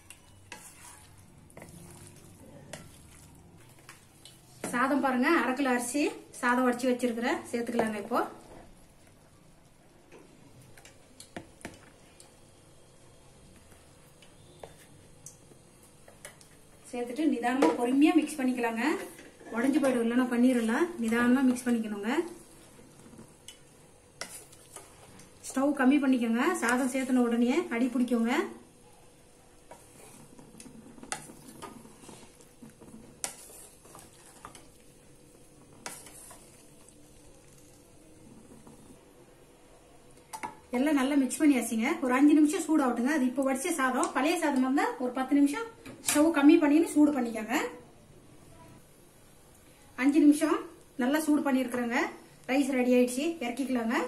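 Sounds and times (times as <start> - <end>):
spatula stirring rice: 0.0 - 4.7, 17.6 - 25.8, 26.4 - 39.0.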